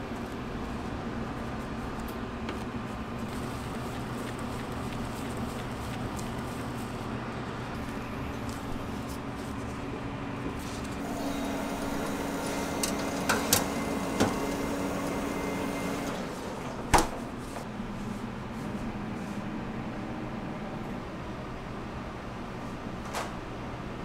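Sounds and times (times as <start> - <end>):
steady machine hum: 0.0 - 23.0
metal tray sliding onto rails: 11.1 - 14.9.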